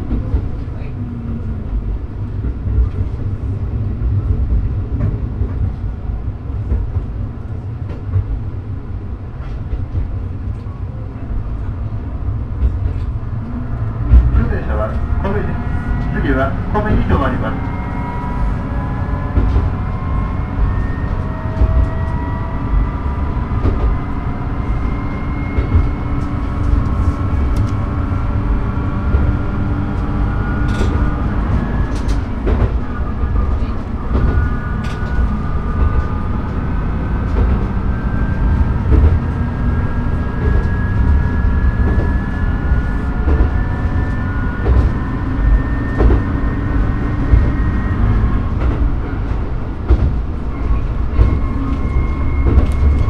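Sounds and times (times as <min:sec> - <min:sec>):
engine and wheels rumbling on rail: 0:00.0 - 0:53.0
rail joint clicks: 0:00.0 - 0:53.0
rising whine: 0:13.0 - 0:53.0.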